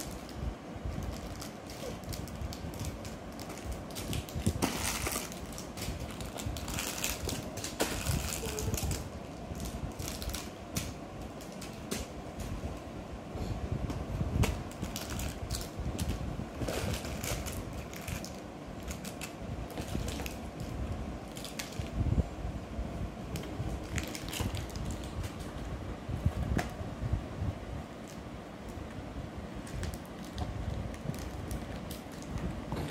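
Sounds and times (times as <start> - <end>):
foil-wrapped chocolates crinkling: 0.0 - 11.9, 14.6 - 22.0, 23.4 - 25.5, 29.6 - 32.4.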